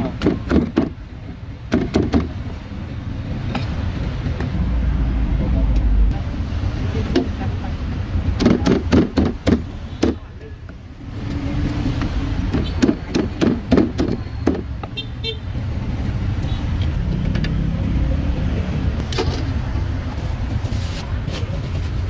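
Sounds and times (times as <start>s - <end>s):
vehicle engine rumbling: 0.0s - 22.0s
sharp knocks: 8.4s - 10.2s.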